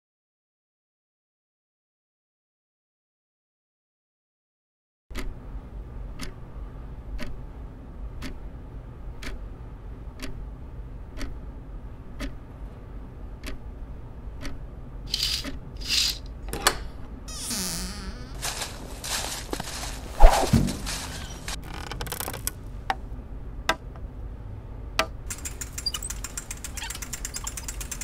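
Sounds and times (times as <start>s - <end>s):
clock ticking: 5.1s - 5.4s, 6.2s - 6.4s, 7.1s - 7.4s, 8.2s - 8.4s, 9.2s - 9.4s, 10.2s - 10.4s, 11.0s - 11.4s, 12.2s - 12.4s, 13.4s - 13.6s, 14.3s - 14.6s, 25.3s - 28.0s
short hissing swishes: 19.8s - 21.5s.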